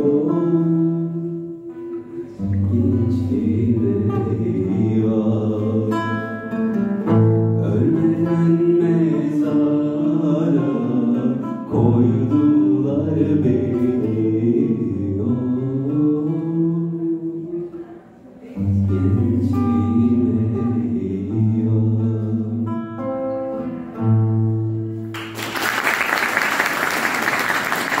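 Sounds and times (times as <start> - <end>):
man singing folk song: 0.0 - 17.8, 18.6 - 24.5
classical guitar: 0.0 - 25.4
audience applause: 25.2 - 28.0.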